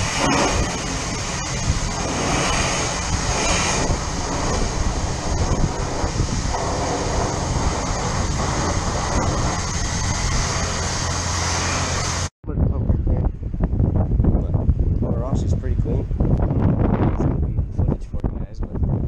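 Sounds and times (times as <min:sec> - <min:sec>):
pressure washer spraying water: 0:00.0 - 0:12.3
low hum: 0:00.0 - 0:18.0.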